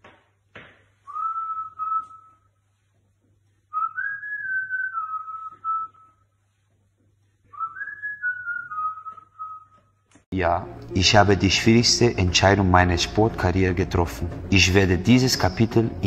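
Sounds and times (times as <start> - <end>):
man whistling: 1.1 - 2.5, 3.7 - 6.2, 7.5 - 9.8.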